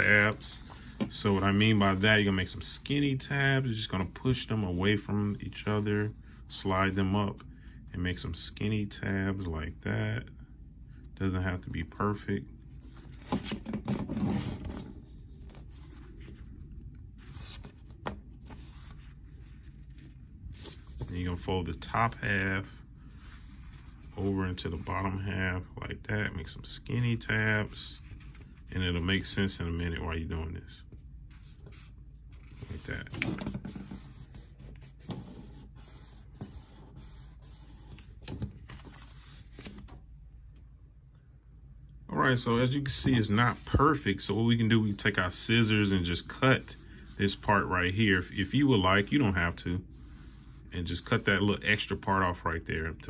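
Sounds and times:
paper sheets rustling: 0.0s - 3.0s, 31.3s - 40.0s
paper rustling and sliding: 0.0s - 7.4s, 12.8s - 25.3s, 26.9s - 29.6s, 31.2s - 40.0s, 42.4s - 52.0s
low steady hum: 0.0s - 53.0s
paper scrape: 12.8s - 16.5s, 31.3s - 40.0s, 42.6s - 52.0s.

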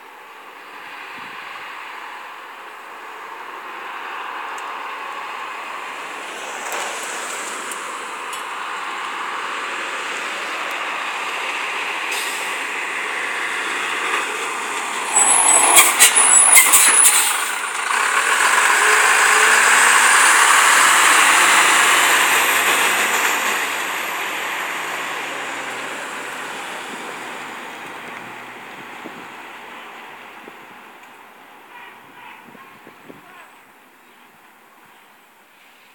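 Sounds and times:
truck engine and tyres passing: 0.3s - 32.1s
air brake hissing bursts: 12.1s - 12.6s, 15.0s - 17.6s
high whistle rising in pitch: 15.0s - 17.6s.

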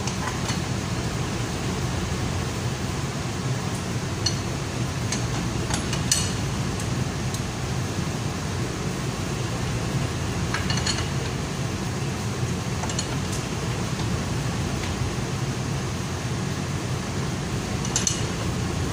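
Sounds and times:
machinery hum: 0.0s - 18.9s
metallic clicks of hand tools: 17.8s - 18.3s.

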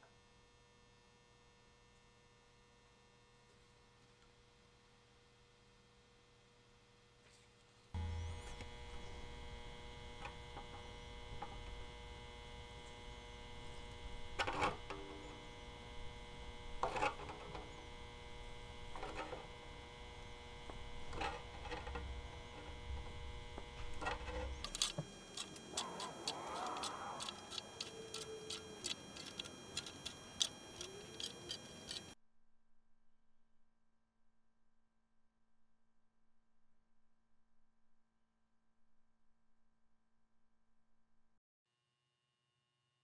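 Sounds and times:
electrical hum: 0.1s - 32.2s
saw set clicking: 16.3s - 32.2s.

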